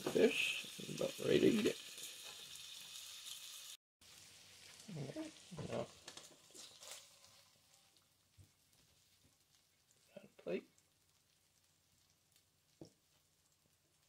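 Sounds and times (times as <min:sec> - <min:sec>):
butter sizzling in a frying pan: 0:00.0 - 0:14.0
spatula scraping a pan: 0:05.6 - 0:07.9.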